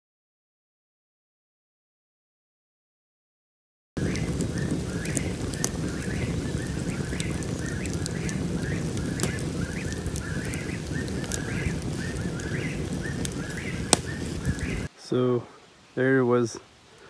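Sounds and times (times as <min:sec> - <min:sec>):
steady low rushing: 0:04.0 - 0:14.9
fire popping: 0:04.0 - 0:15.2
campfire crackling: 0:04.0 - 0:17.0.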